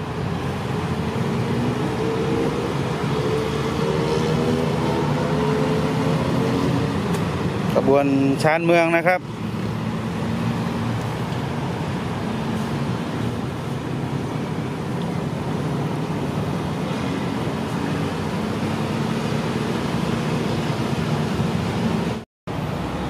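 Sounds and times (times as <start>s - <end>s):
diesel engine hum: 0.0s - 23.0s
traffic noise: 0.0s - 23.0s.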